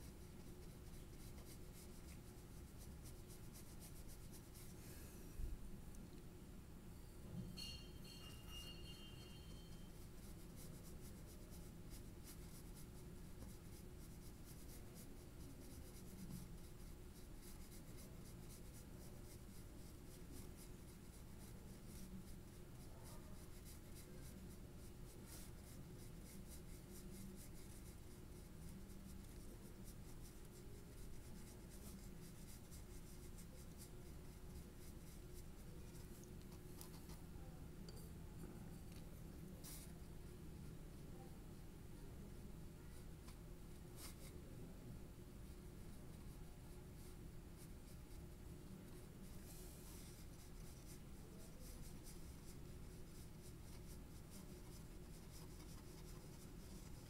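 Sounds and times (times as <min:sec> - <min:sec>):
colouring tool scratching paper: 0:00.0 - 0:04.8, 0:09.9 - 0:37.2, 0:49.0 - 0:57.0
low room hum: 0:00.0 - 0:57.0.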